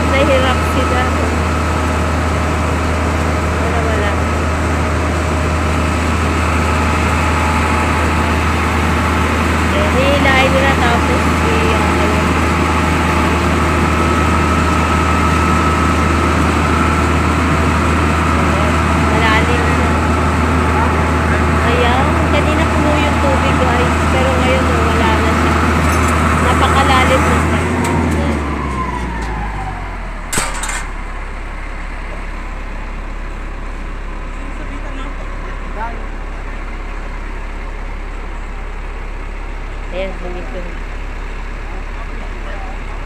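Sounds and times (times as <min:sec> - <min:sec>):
truck engine droning: 0:00.0 - 0:43.0
sharp bang: 0:30.3 - 0:31.0.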